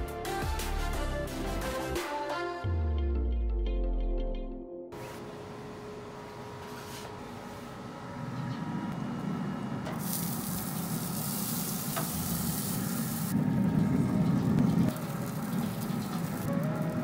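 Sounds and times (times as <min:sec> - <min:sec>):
grill fan and fire hum: 0:05.0 - 0:17.0
chicken sizzling on grate: 0:10.0 - 0:13.4, 0:14.8 - 0:17.0.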